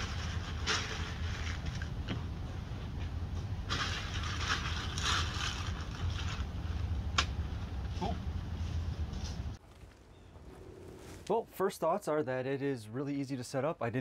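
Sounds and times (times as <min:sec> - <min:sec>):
steady low rumble: 0:00.0 - 0:11.9
dry leaves crunching underfoot: 0:03.7 - 0:06.9, 0:08.6 - 0:11.3.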